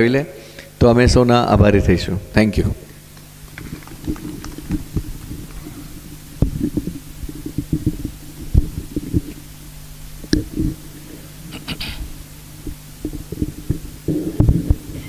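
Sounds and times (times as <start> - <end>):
steady low hum: 0.0 - 15.0
microphone handling thumps: 3.5 - 9.4, 10.2 - 15.0.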